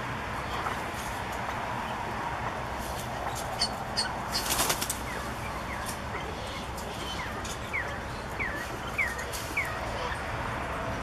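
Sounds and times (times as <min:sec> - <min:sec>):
steady background hum: 0:00.0 - 0:11.0
bird chirping: 0:03.3 - 0:10.2.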